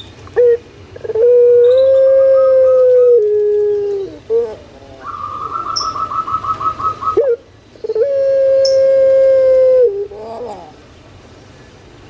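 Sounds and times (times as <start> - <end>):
dove trilling and cooing: 0.4 - 10.8.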